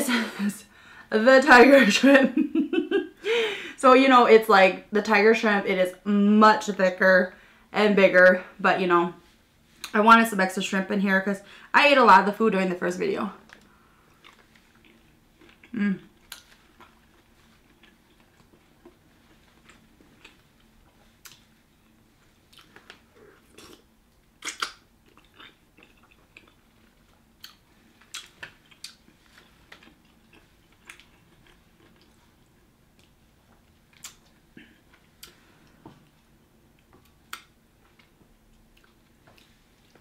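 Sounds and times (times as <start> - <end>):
person chewing food: 13.5 - 40.0
eating clicks and smacks: 22.5 - 26.6, 32.9 - 35.4.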